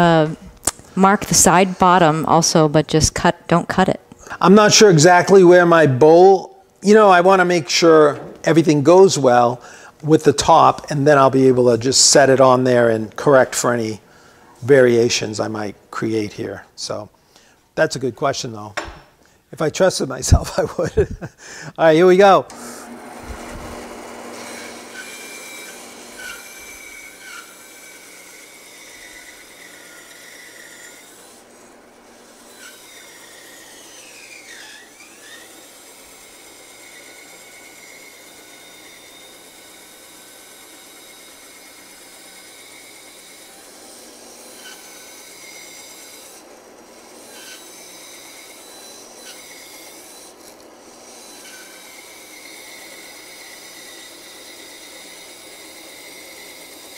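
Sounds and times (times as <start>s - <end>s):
bandsaw rasping through wood: 22.5s - 56.9s.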